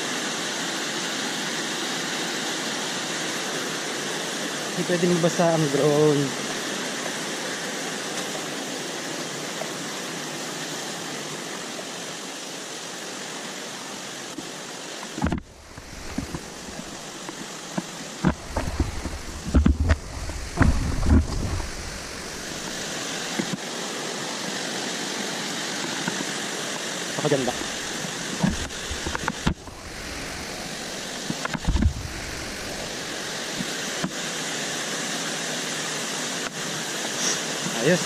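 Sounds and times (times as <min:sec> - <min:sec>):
mountain stream rushing: 0:00.0 - 0:38.0
camera handling thumps: 0:15.2 - 0:16.5, 0:17.2 - 0:21.7, 0:31.3 - 0:32.1.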